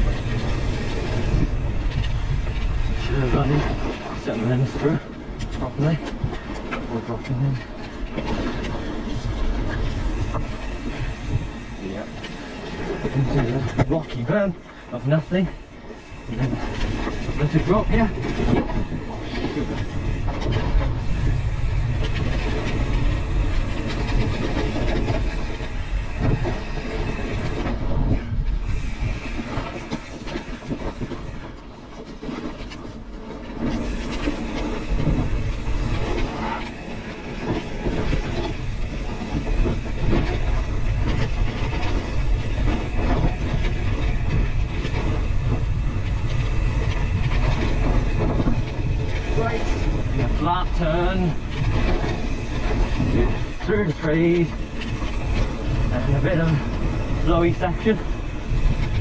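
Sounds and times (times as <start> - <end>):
wind on microphone: 0.0 - 14.7, 15.6 - 59.0
bike rattling over dirt trail: 0.0 - 59.0.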